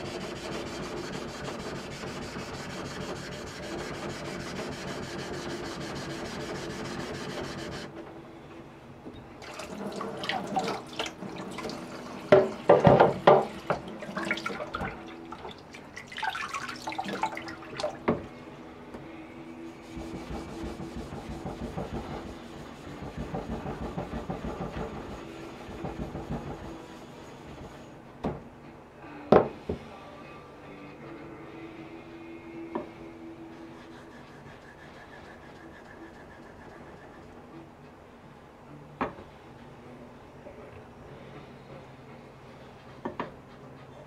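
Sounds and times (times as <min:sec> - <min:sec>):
blade rubbing on whetstone: 0:00.0 - 0:07.9, 0:33.6 - 0:37.3
water splashing: 0:13.8 - 0:18.0.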